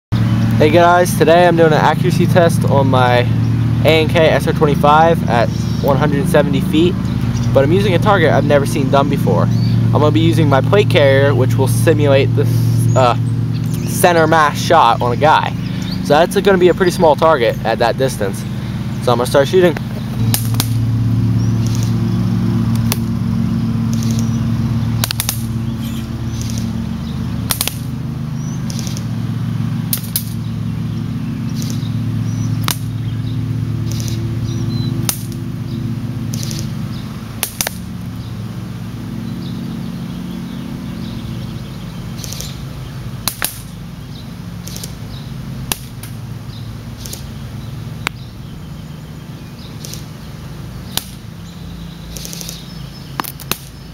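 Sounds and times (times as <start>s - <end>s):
low hum: 0.1s - 53.9s
airsoft rifle shots: 20.2s - 20.8s, 25.0s - 25.6s, 27.4s - 27.9s, 33.8s - 34.2s, 36.3s - 36.7s, 37.4s - 37.9s, 43.2s - 43.8s, 44.6s - 45.0s, 45.6s - 46.2s, 47.0s - 47.3s, 50.9s - 51.2s, 52.1s - 52.6s.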